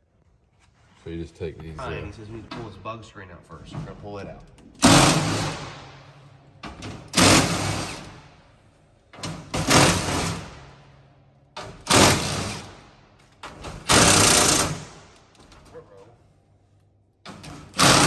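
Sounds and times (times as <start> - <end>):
impact driver hammering: 4.8 - 5.9, 6.6 - 8.2, 9.2 - 10.6, 11.6 - 12.8, 13.5 - 15.0, 17.3 - 18.0.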